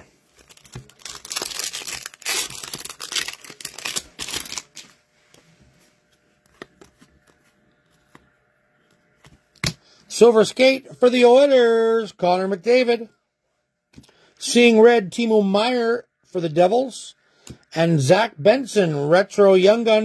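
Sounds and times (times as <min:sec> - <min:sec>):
foil wrappers ripping and crinkling: 0:00.2 - 0:05.0.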